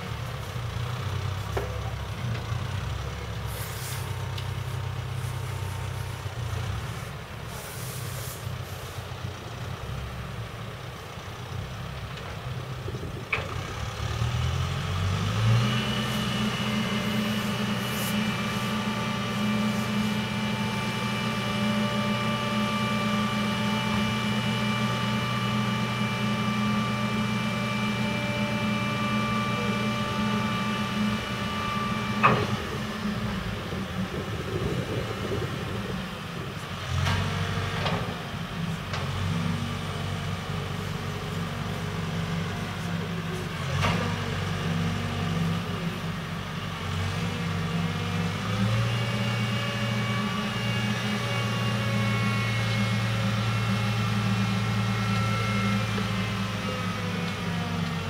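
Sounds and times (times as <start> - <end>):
diesel engine idling and revving: 0.0 - 58.0
hydraulic whine: 15.2 - 39.4, 47.2 - 58.0.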